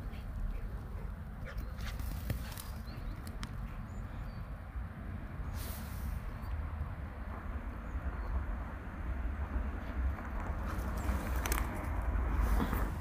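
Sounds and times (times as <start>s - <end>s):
low outdoor rumble: 0.0s - 13.0s
brief hiss: 5.5s - 6.2s.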